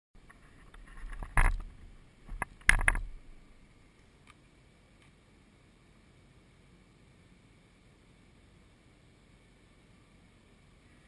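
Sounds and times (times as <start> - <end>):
knocks and rattles on a camera: 0.2 - 3.2.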